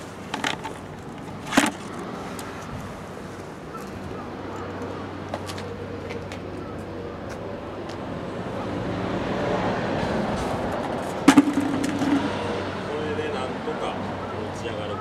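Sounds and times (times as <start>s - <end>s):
vehicle passing: 6.9s - 15.0s.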